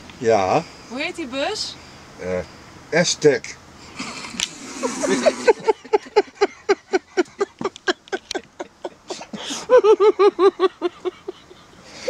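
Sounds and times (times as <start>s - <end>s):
person laughing hard: 4.0s - 12.0s.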